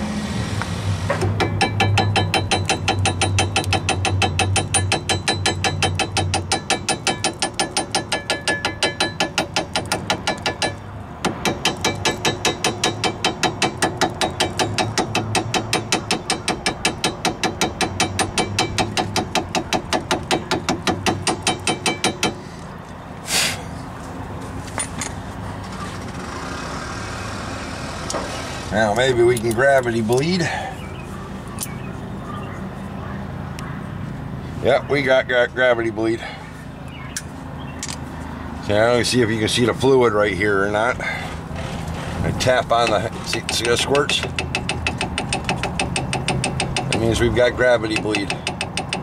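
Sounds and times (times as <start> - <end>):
hammer tapping on metal: 1.2 - 22.4, 42.8 - 47.2, 47.8 - 49.0.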